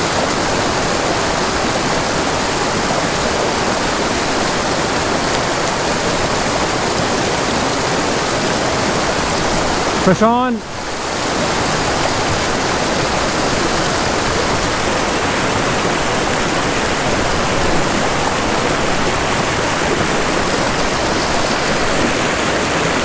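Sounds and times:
stream rushing over boulders: 0:00.0 - 0:23.0.

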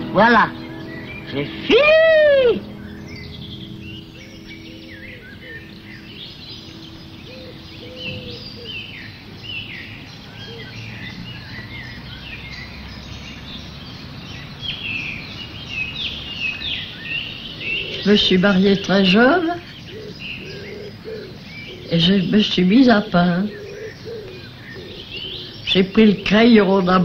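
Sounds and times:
birds chirping and singing: 0:00.0 - 0:27.0
steady outdoor hiss: 0:00.0 - 0:27.0
woman exclaiming loudly: 0:01.7 - 0:02.6.

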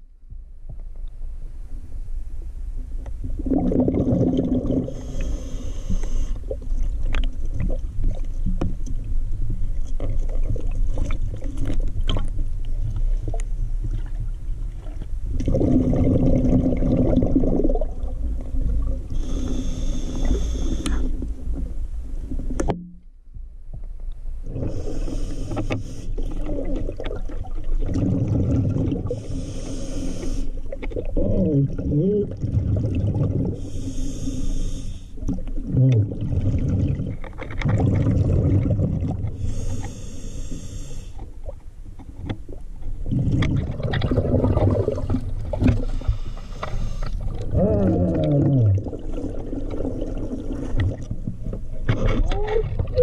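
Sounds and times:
low rumble of river water: 0:00.0 - 0:53.0
bubbling exhalation: 0:03.4 - 0:05.2, 0:15.4 - 0:18.1, 0:26.3 - 0:29.3, 0:31.0 - 0:33.6, 0:35.2 - 0:39.7, 0:43.0 - 0:46.0, 0:47.3 - 0:51.1
diver breathing through regulator: 0:04.6 - 0:06.5, 0:19.1 - 0:21.3, 0:24.5 - 0:26.4, 0:29.0 - 0:30.7, 0:33.4 - 0:35.2, 0:39.3 - 0:41.3, 0:44.9 - 0:48.2.

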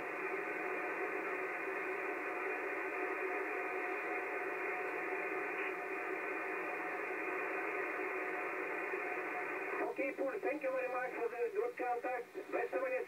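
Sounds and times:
faint steady radio tones: 0:00.0 - 0:13.0
radio static hiss: 0:00.0 - 0:13.0.

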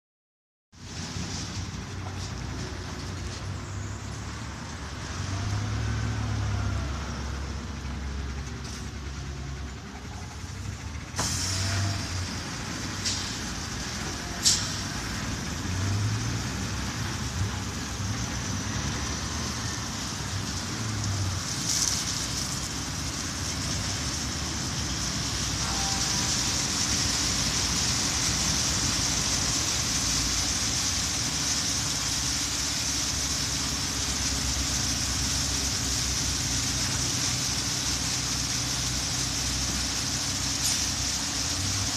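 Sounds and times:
bus engine running: 0:00.8 - 0:41.9
water spray and brushes hissing: 0:11.2 - 0:41.9.

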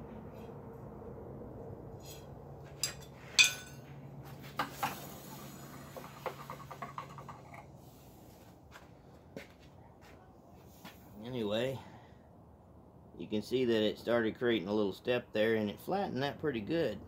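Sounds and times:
steady low hum: 0:00.0 - 0:17.0
steel tools clinking on anvil: 0:02.8 - 0:03.8.

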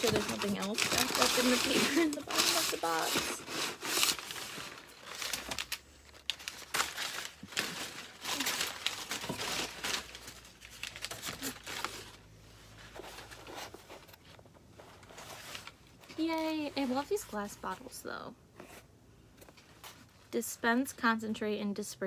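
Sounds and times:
packing paper crinkling: 0:00.0 - 0:14.1.

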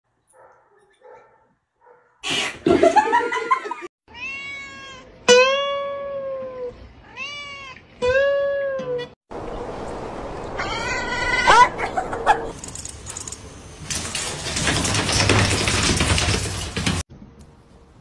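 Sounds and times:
cat yowling: 0:04.1 - 0:07.8.

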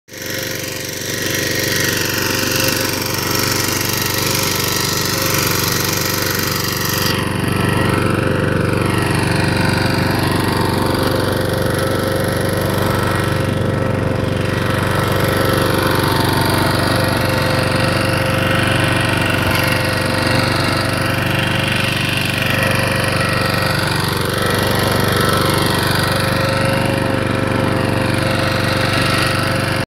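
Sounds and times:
power tiller engine chugging: 0:00.1 - 0:29.8.

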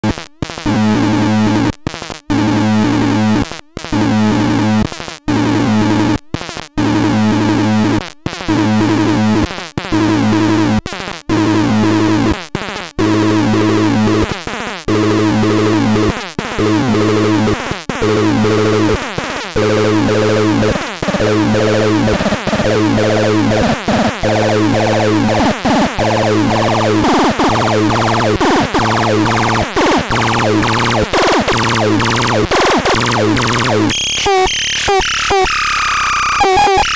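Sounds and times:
buzzy synthesizer pulses: 0:15.0 - 0:36.9
harsh high noise: 0:19.6 - 0:35.6.

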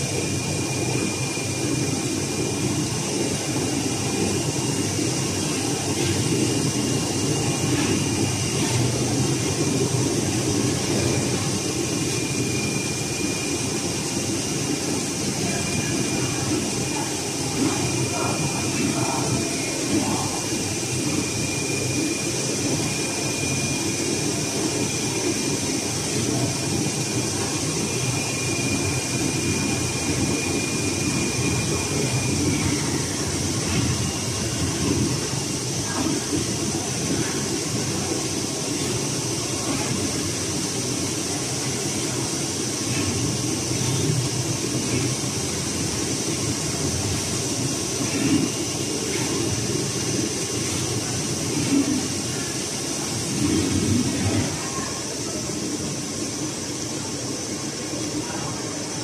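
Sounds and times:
cutter machine hum and whine: 0:00.0 - 0:38.0.

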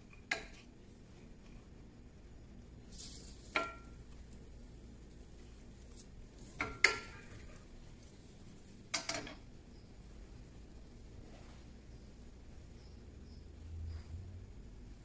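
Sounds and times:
soft scrape: 0:11.2 - 0:11.8.

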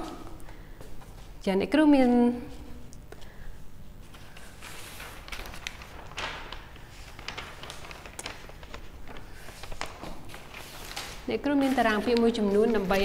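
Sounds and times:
steady low hum: 0:00.0 - 0:13.0
paper chart rustling: 0:03.9 - 0:13.0.

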